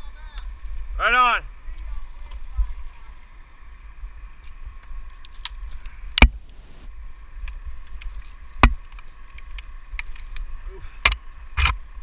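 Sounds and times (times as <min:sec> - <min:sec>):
faint whine: 0:00.0 - 0:12.0
climbing gear clicks and rattles: 0:01.7 - 0:03.1.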